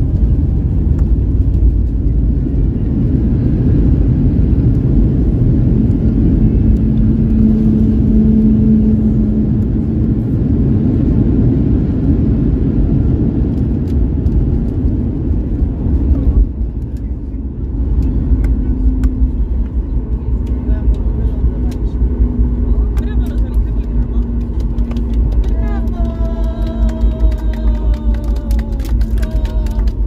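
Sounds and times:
jet engines and wheels rumbling: 0:00.0 - 0:30.0
steady hum: 0:16.4 - 0:30.0.

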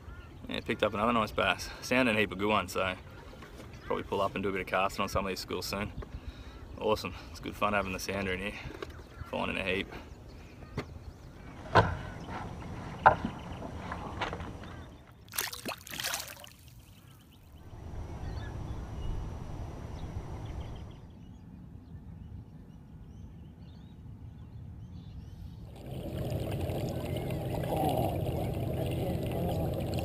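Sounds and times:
wind: 0:00.0 - 0:30.0
water noise from moving canoe: 0:15.3 - 0:17.2, 0:25.7 - 0:30.0
water splashing: 0:15.3 - 0:17.3, 0:25.7 - 0:30.0.

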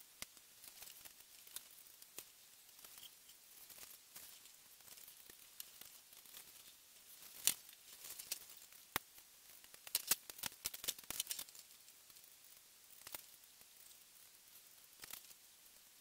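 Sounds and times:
plastic parts being handled: 0:02.8 - 0:08.7, 0:09.7 - 0:11.6
sharp plastic clicks: 0:09.7 - 0:11.6.

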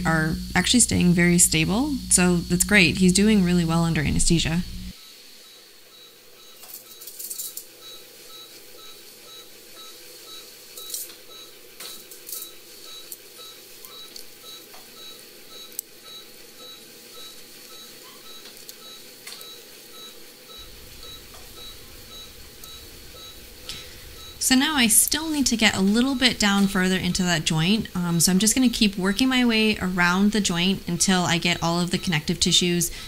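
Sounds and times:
monitor beeping: 0:00.0 - 0:04.9, 0:12.4 - 0:33.0.

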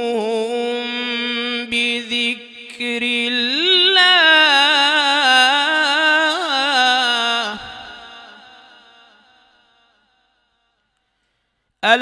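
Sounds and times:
man chanting melodic recitation: 0:00.0 - 0:08.7.

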